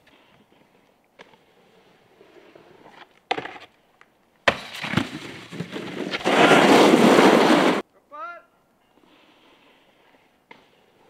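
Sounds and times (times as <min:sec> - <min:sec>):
snowboard scraping across snow: 0:04.6 - 0:07.8.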